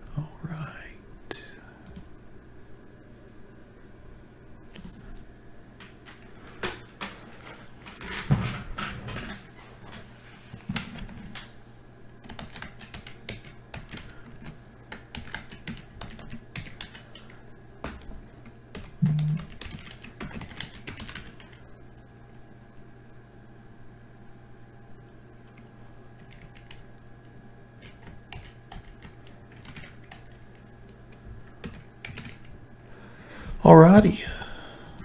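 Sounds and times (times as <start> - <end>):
steady low hum: 0.0 - 35.0
typing on computer keyboard: 4.8 - 5.0, 12.2 - 21.6, 25.5 - 26.8, 27.8 - 30.7, 31.6 - 32.5.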